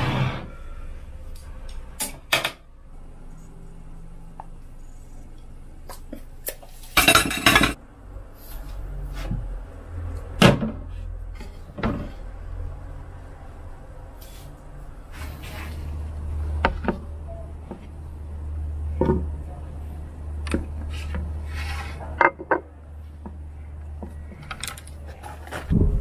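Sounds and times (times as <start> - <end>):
dishes and utensils clattering: 6.8 - 7.8.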